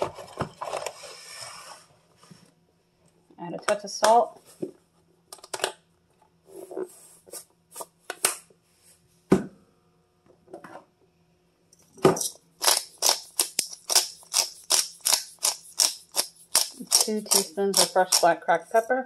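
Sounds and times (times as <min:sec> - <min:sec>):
pepper grinder crunchy clicks: 0:12.2 - 0:18.4.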